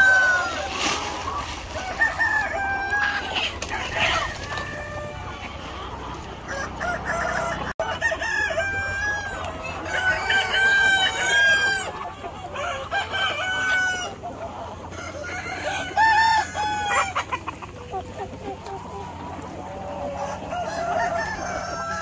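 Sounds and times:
hens clucking: 0:00.0 - 0:22.0
roosters crowing: 0:00.0 - 0:22.0.

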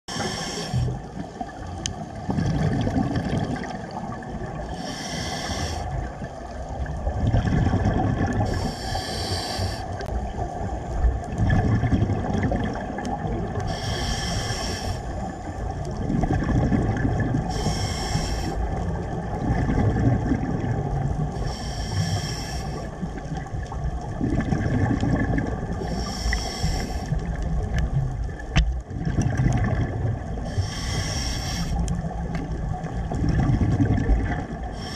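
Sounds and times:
diver inhaling through regulator: 0:00.1 - 0:01.0, 0:04.7 - 0:06.0, 0:08.4 - 0:10.1, 0:13.6 - 0:15.3, 0:17.5 - 0:18.7, 0:21.4 - 0:23.0, 0:25.8 - 0:27.3, 0:30.4 - 0:31.8, 0:34.6 - 0:34.9
bubbling exhale underwater: 0:02.2 - 0:04.6, 0:06.9 - 0:09.0, 0:11.3 - 0:14.0, 0:15.9 - 0:18.1, 0:18.7 - 0:21.3, 0:23.0 - 0:34.9.

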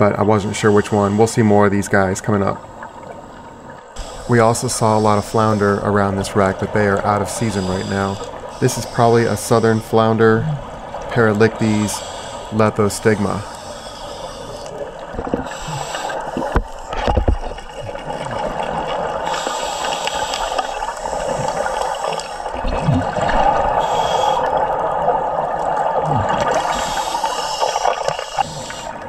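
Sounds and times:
gurgling of exhaled bubbles: 0:14.4 - 0:29.0.

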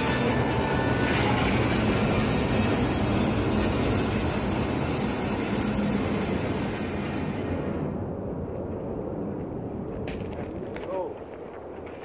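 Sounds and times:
band sawmill cutting log: 0:00.0 - 0:08.0.

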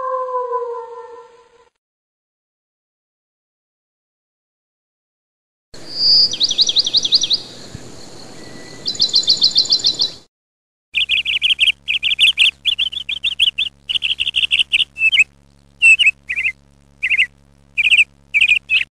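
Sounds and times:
songbird trills: 0:05.8 - 0:10.2, 0:11.0 - 0:18.9
songbird sharp chirps: 0:05.8 - 0:10.3, 0:11.0 - 0:18.9.

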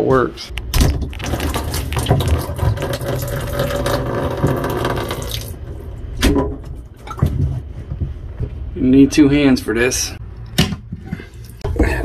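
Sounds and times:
water pouring into a plastic tub: 0:01.2 - 0:05.6.

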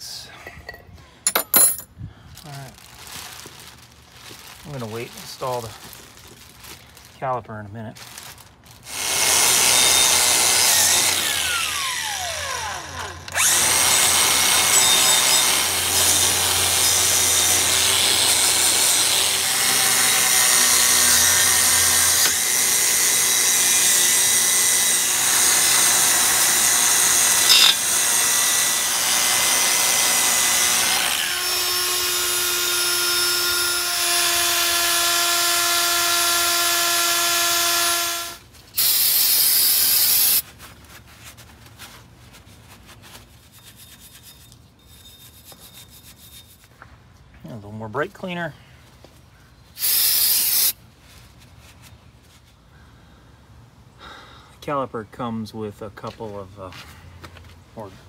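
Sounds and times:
power drill with wire brush: 0:08.9 - 0:40.4, 0:49.8 - 0:50.8.

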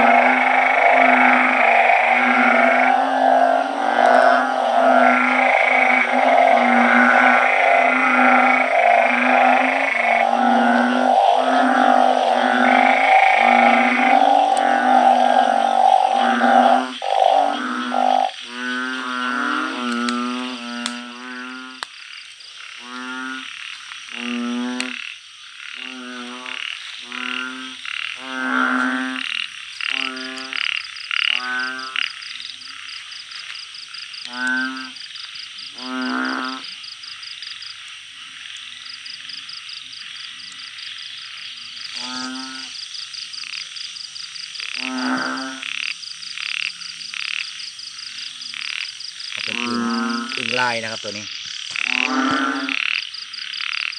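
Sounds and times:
frogs croaking in chorus: 0:00.0 - 0:53.9.

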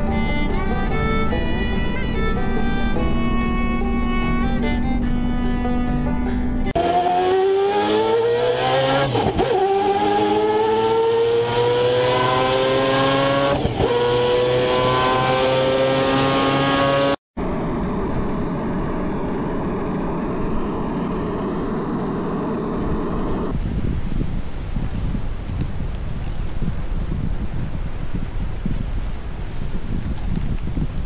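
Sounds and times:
car engine accelerating: 0:00.0 - 0:23.6
car driving on sand: 0:06.7 - 0:31.0.

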